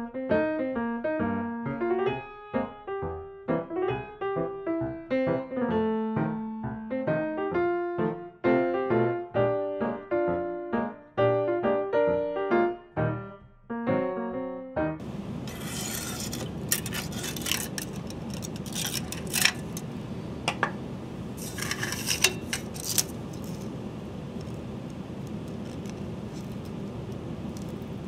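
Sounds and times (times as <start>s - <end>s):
piano music: 0.0s - 15.1s
steady hum: 15.0s - 28.0s
tool scraping on metal bed: 15.4s - 19.8s, 21.4s - 23.1s.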